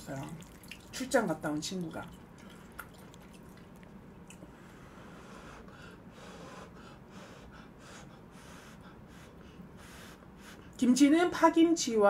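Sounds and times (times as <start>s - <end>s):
soft chewing: 0.0s - 1.0s, 1.6s - 4.8s
short soft eating noises: 0.2s - 0.9s, 1.9s - 4.8s
breathing: 4.5s - 10.8s.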